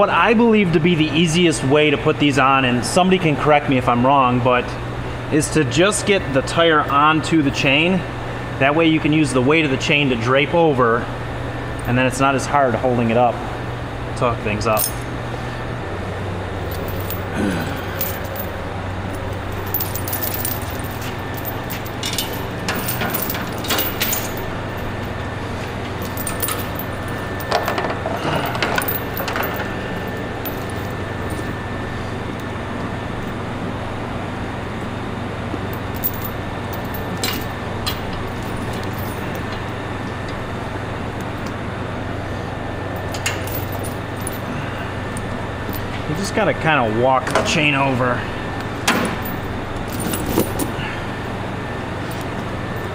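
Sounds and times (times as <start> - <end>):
steady low hum: 0.0 - 52.9
chain links clinking and rattling: 14.8 - 15.1, 16.6 - 31.6, 35.7 - 39.7, 43.0 - 44.6, 49.0 - 50.8.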